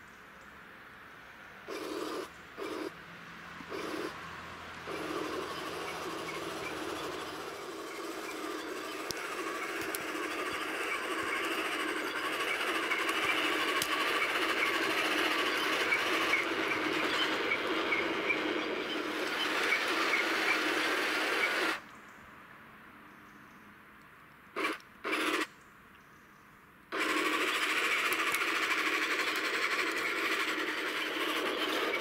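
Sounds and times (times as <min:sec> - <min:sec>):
toy tank motors whirring: 0:01.7 - 0:03.0, 0:03.6 - 0:04.2, 0:04.8 - 0:21.8, 0:24.6 - 0:25.5, 0:26.9 - 0:32.0.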